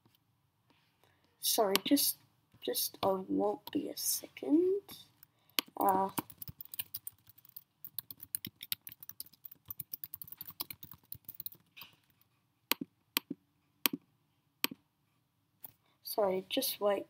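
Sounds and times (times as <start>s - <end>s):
loud keyboard clicks: 5.6s - 12.0s
typing on computer keyboard: 5.6s - 13.3s.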